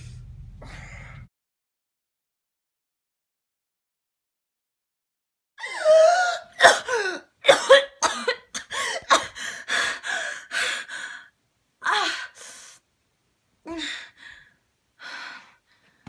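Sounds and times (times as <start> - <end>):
woman coughing hard: 6.6 - 9.4
woman gasping for air: 8.7 - 11.3.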